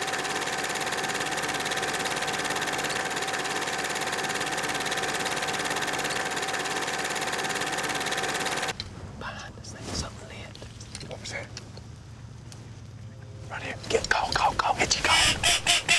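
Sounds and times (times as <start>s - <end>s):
film projector clattering: 0.0s - 8.8s
constant hum: 0.0s - 15.9s.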